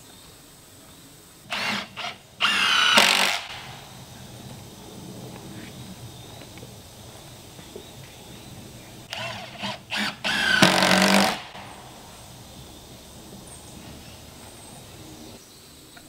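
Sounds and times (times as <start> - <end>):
cordless drill driving screw into wood: 1.5 - 3.8, 9.1 - 11.8.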